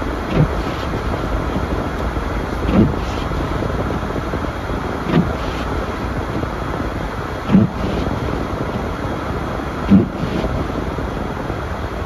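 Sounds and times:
windshield wipers thumping: 0:00.0 - 0:11.1
road and tyre noise inside car: 0:00.0 - 0:12.0.

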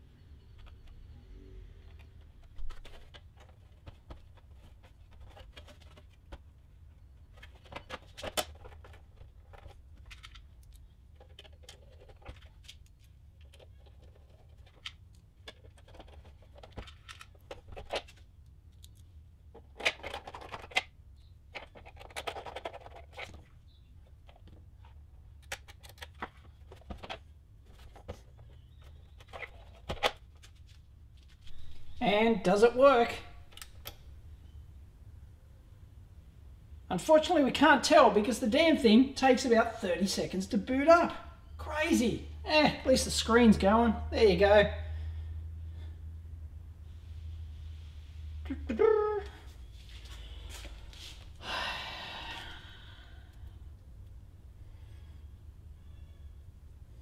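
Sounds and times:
faint low hum: 0:00.0 - 0:57.0
plastic case parts clicking: 0:07.3 - 0:18.2, 0:19.6 - 0:23.4, 0:25.4 - 0:27.2.

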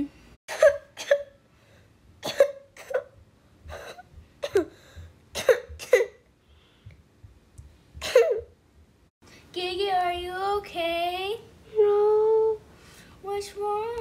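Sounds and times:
child coughing: 0:00.5 - 0:01.4, 0:02.2 - 0:04.8, 0:05.4 - 0:06.2, 0:08.0 - 0:08.5.

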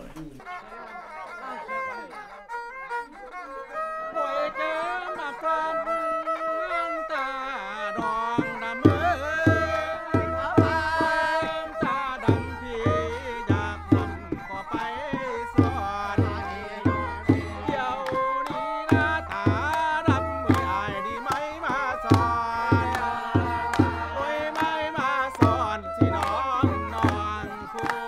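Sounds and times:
bowed fiddle melody: 0:00.3 - 0:28.0
rhythmic hand-clapping: 0:07.7 - 0:28.0.

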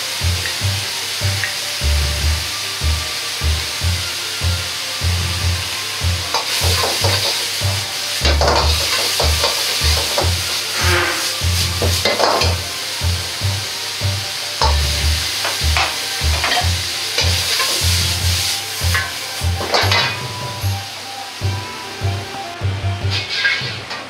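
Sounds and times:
food sizzling in a wok: 0:00.0 - 0:24.0
metal ladle scraping a pan: 0:06.3 - 0:12.6, 0:15.4 - 0:20.3, 0:23.1 - 0:23.9.

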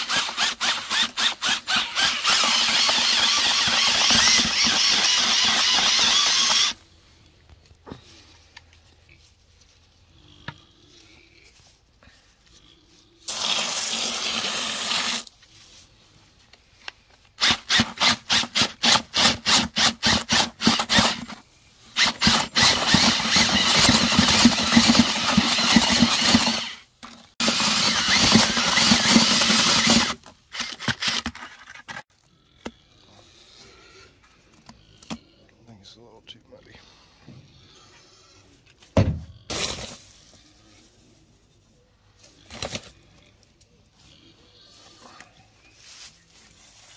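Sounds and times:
power drill mixing wet mortar: 0:00.0 - 0:06.8, 0:13.3 - 0:15.3, 0:17.4 - 0:32.0.

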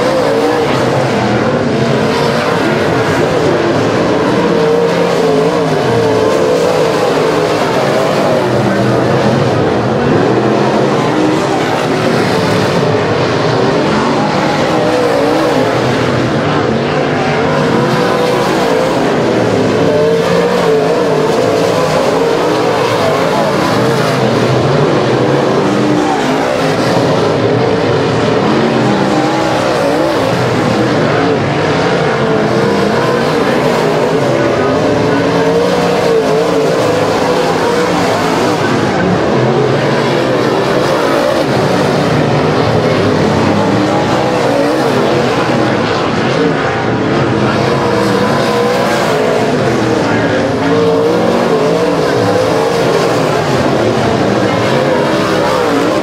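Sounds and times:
race car engines at high revs: 0:00.0 - 0:56.0.

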